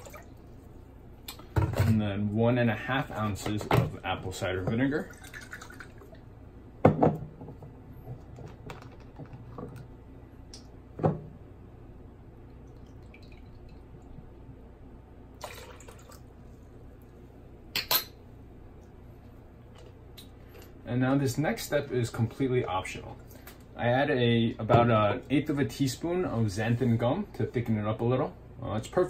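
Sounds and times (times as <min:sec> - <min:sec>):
liquid pouring into cup: 0:05.0 - 0:06.3, 0:12.6 - 0:14.1, 0:15.4 - 0:16.3.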